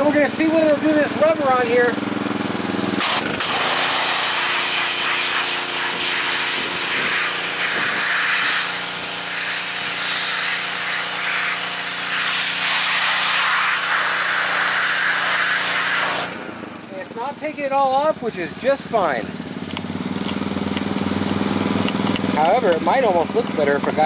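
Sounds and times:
washer motor and pump hum: 0.0 - 24.0
pressure washer spray hissing: 3.0 - 17.0.

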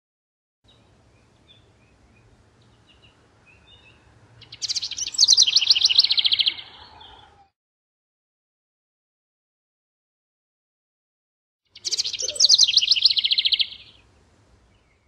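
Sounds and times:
bird singing trill: 0.7 - 7.5, 11.7 - 15.0.

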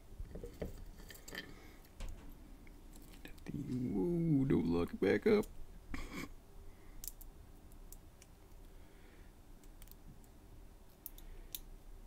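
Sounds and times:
small metallic clicks and taps: 7.0 - 8.7, 9.6 - 11.7.

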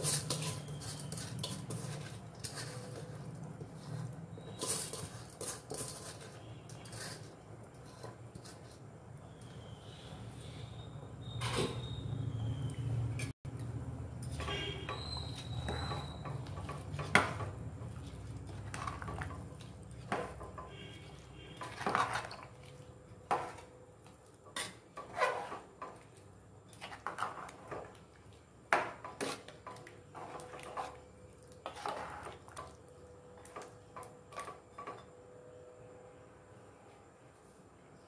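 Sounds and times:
metal ladle scraping pot: 0.0 - 8.9, 14.2 - 23.7, 24.5 - 26.1, 26.7 - 28.0, 28.7 - 32.7.

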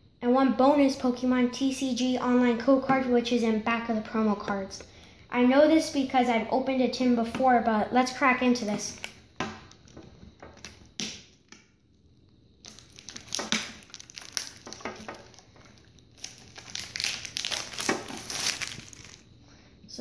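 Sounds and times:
plastic wrap crackling: 12.6 - 19.3.

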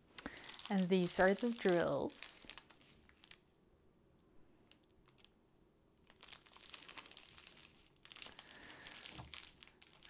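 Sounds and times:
plastic bags crinkling: 0.2 - 3.5, 4.7 - 5.3, 6.0 - 10.0.

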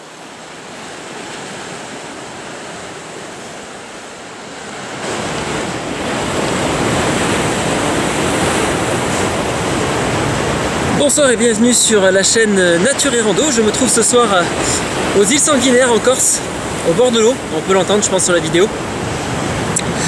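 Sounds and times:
wind on microphone: 0.0 - 11.0
sea surf washing on shore: 0.0 - 20.0.

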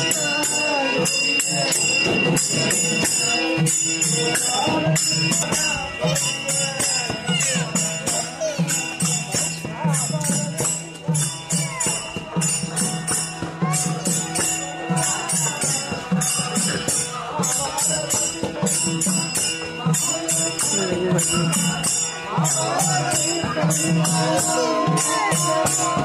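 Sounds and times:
group singing devotional song: 0.0 - 8.4, 11.9 - 26.0
hand cymbals striking: 0.0 - 26.0.

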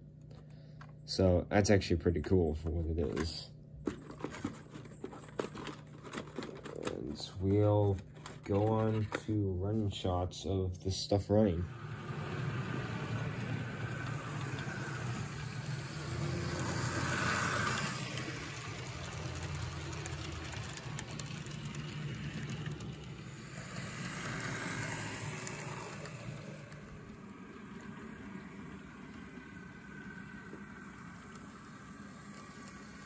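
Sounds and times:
model train motor hum: 11.5 - 33.0
wheels rushing on rails: 11.6 - 33.0.

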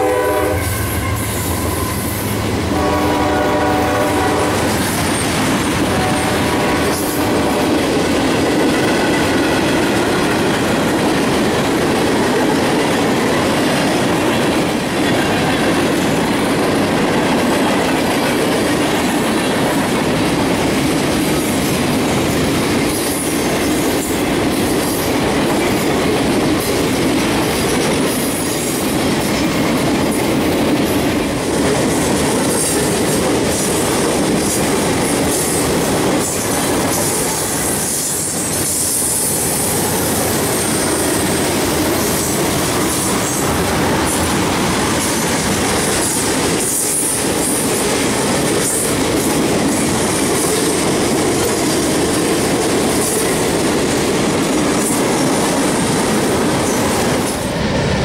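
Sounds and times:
high wheel squeal: 0.6 - 2.4.

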